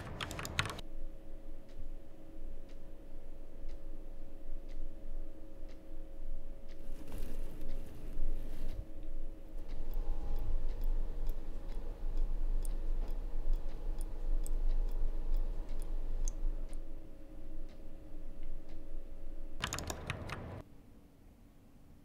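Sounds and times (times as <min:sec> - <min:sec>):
low room hum: 0:00.0 - 0:22.0
faint irregular clicks: 0:02.6 - 0:18.9.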